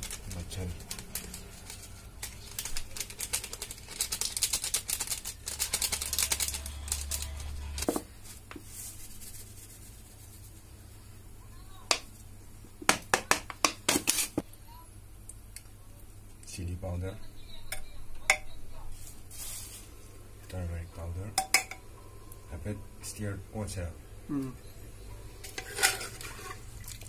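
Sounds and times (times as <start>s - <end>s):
paper packet crinkling and tearing: 0.0s - 9.8s.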